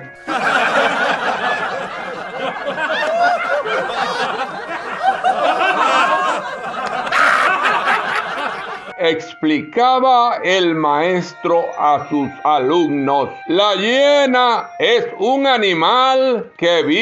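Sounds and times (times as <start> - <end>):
audience laughter: 0.2 - 8.9.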